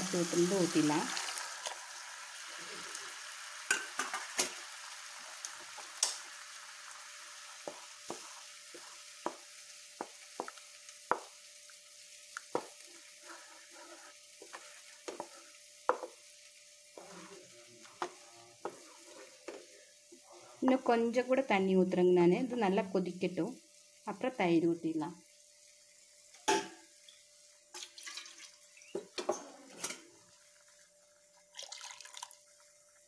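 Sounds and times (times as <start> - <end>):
hot pan hissing: 0.0 - 21.4, 25.2 - 27.8
wooden spoon knocking pan: 9.2 - 11.4, 14.5 - 16.2.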